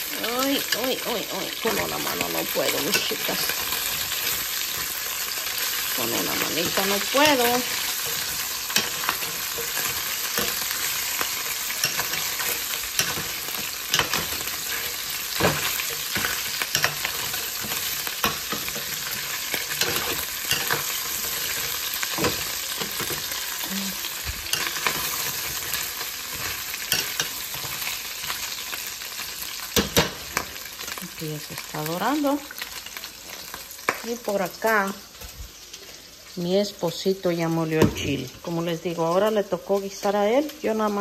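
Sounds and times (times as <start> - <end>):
metal utensil scraping pan: 0.0 - 31.0
meat sizzling in oil: 0.0 - 41.0.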